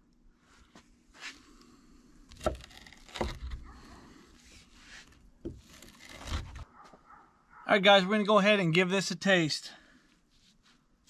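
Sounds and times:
knife crunching through crisp bread: 0:02.3 - 0:04.0
scraping rustle: 0:02.4 - 0:06.7.

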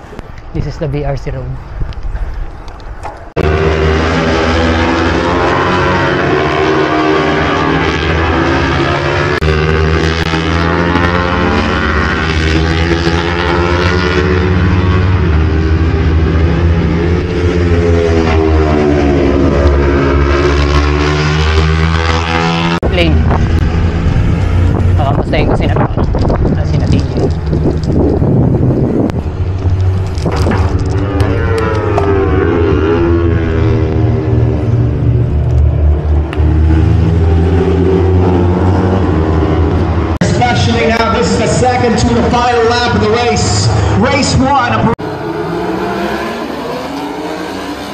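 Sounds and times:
racing motorcycles at high revs: 0:03.3 - 0:47.9
steady low rumble: 0:22.8 - 0:32.6.

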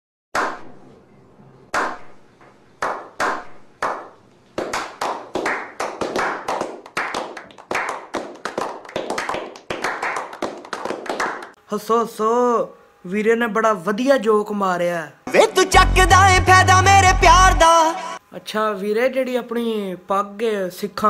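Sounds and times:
people slow-clapping: 0:02.8 - 0:11.6.

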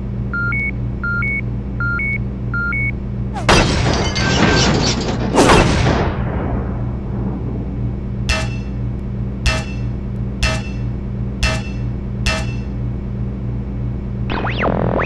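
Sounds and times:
low mechanical hum: 0:00.0 - 0:15.0
heavy metallic footstep clanks: 0:09.5 - 0:12.8.

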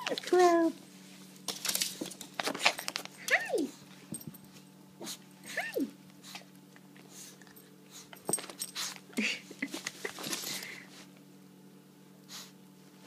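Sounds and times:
woman saying hi: 0:03.3 - 0:03.7.

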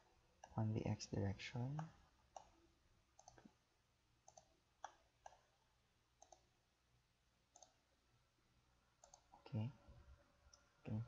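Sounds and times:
computer mouse clicks: 0:01.7 - 0:02.6, 0:03.2 - 0:03.6, 0:04.2 - 0:05.5, 0:06.2 - 0:06.5, 0:07.5 - 0:07.8, 0:09.0 - 0:09.5.

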